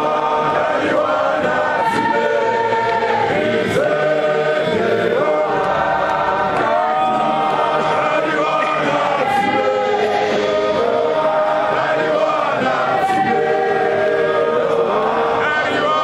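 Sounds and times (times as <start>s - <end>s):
male choir singing a hymn: 0.0s - 16.0s.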